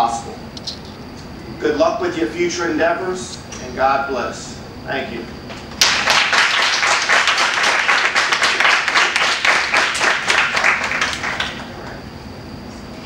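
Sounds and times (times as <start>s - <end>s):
audience applauding: 5.8s - 11.9s.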